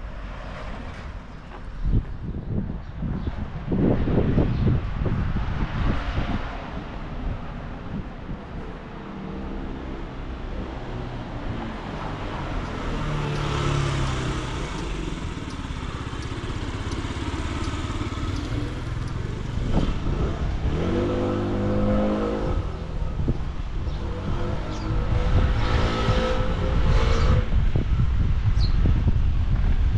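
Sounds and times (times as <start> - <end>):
vehicle passing: 5.5 - 23.3
engine accelerating: 10.6 - 28.0.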